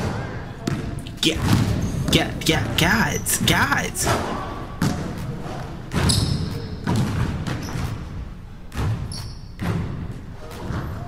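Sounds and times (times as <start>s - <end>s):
basketball bouncing on hardwood: 5.9s - 7.9s.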